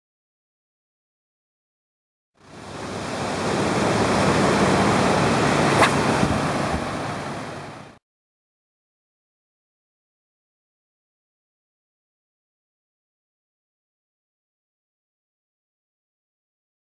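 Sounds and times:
surf breaking on beach: 0:02.7 - 0:08.0
wind on microphone: 0:03.8 - 0:07.6
brief sharp sound: 0:05.7 - 0:06.8.

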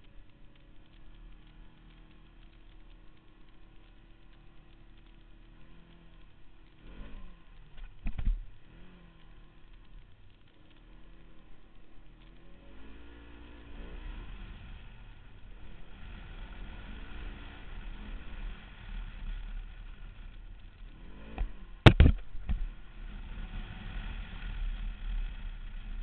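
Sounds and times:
vehicle engine revving: 0:00.0 - 0:26.0.

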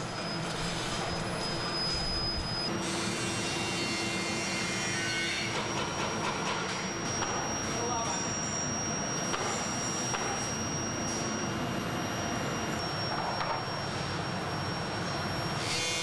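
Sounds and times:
thin high whine: 0:00.0 - 0:02.9, 0:06.7 - 0:16.0.

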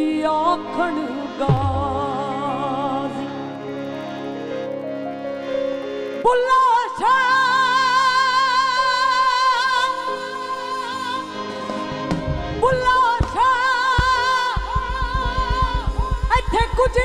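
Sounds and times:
woman singing with band: 0:00.0 - 0:03.3, 0:10.8 - 0:17.0
fast drum beat: 0:12.8 - 0:17.0.

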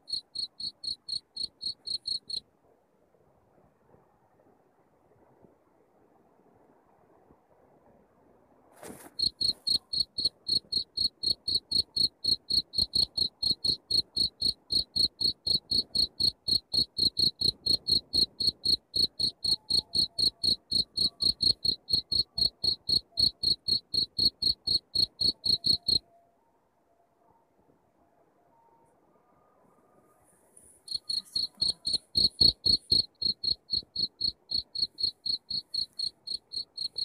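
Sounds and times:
cricket chirping: 0:00.0 - 0:02.4, 0:09.0 - 0:26.0, 0:30.8 - 0:37.0.

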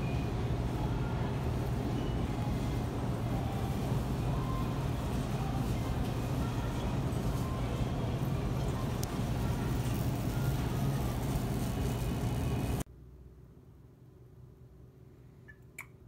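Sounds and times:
busy indoor ambience: 0:00.0 - 0:12.9
steady low hum: 0:00.0 - 0:16.0.

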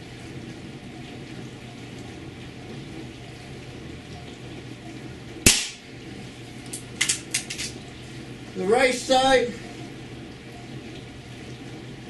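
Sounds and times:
air rifle shot: 0:05.5 - 0:05.8.

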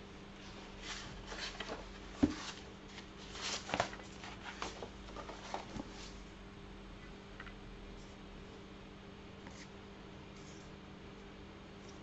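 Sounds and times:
paper rustling: 0:00.8 - 0:06.2
book knock: 0:02.2 - 0:02.4.

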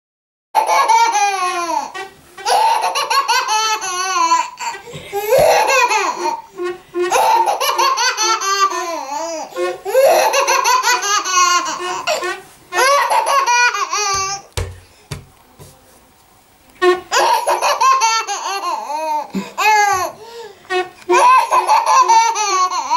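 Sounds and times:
baby laughing: 0:00.6 - 0:14.5, 0:17.1 - 0:20.4, 0:21.1 - 0:22.9
wooden door creaking: 0:13.9 - 0:15.4.

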